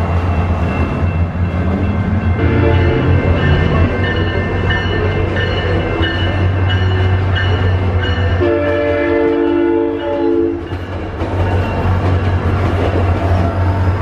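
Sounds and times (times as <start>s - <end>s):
crossing bell dinging: 0.0s - 12.8s
train horn chord: 2.3s - 3.5s, 8.3s - 10.7s.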